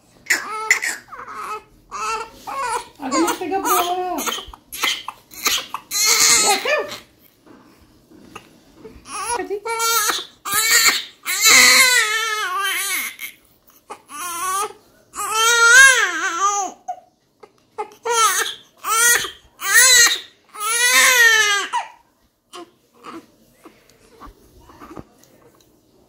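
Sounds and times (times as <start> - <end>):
baby crying: 0.3 - 7.1, 9.0 - 17.0, 17.8 - 23.2.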